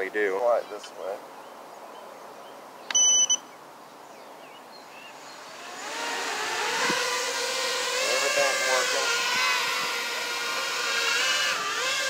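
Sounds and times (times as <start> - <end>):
short electronic beep: 2.9 - 3.5
drone motors whining: 5.1 - 12.0.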